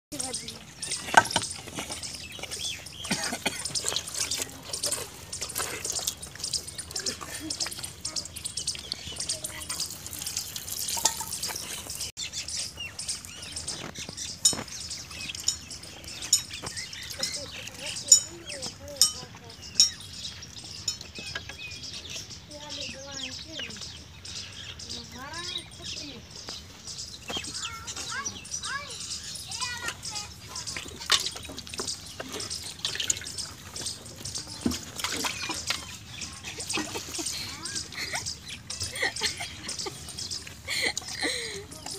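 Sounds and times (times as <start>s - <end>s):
small birds chirping: 0.1s - 41.9s
water buffalo feeding at trough: 0.1s - 41.9s
milk squirting into metal pail: 1.4s - 12.1s, 30.6s - 39.3s.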